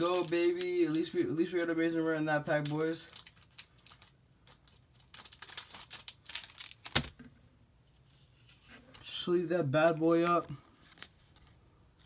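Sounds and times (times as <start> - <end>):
plastic sleeve crinkling: 0.0 - 7.2.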